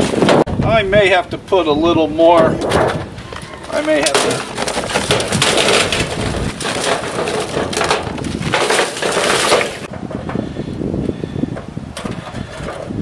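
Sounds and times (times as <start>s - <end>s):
charcoal briquettes clattering onto metal: 3.7s - 10.0s.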